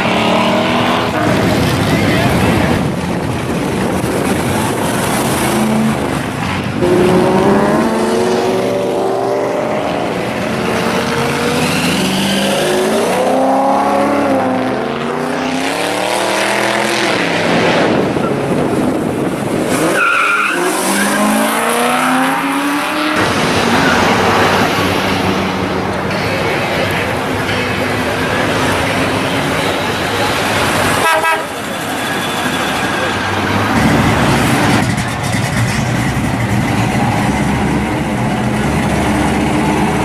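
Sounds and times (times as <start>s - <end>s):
car engines revving: 0.0s - 40.0s
high squeal: 31.4s - 33.8s.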